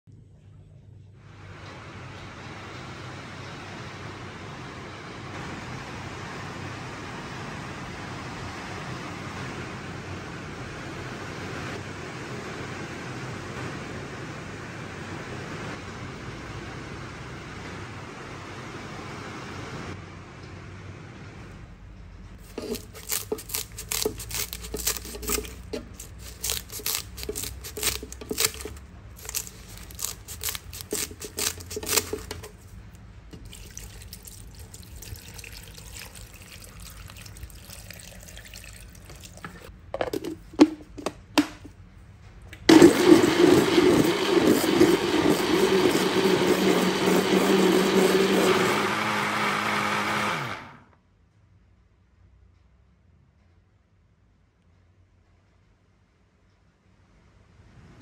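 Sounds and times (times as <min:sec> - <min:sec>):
electric blender running: 0:22.4 - 0:32.5, 0:42.7 - 0:50.9
leaves rustling into a jug: 0:22.4 - 0:32.7
water pouring: 0:33.3 - 0:39.7
jug knocking: 0:40.0 - 0:41.7.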